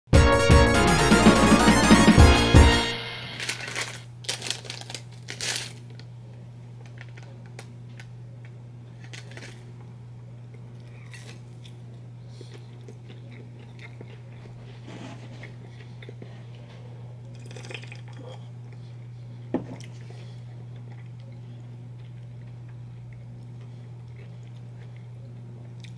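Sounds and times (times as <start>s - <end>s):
crunching and chewing: 3.4s - 25.9s.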